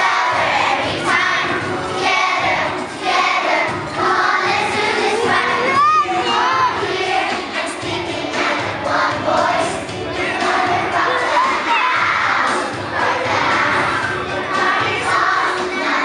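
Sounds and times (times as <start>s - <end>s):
backing music: 0.0s - 16.0s
children singing loudly: 0.0s - 16.0s
children shouting: 5.1s - 7.3s, 10.4s - 16.0s.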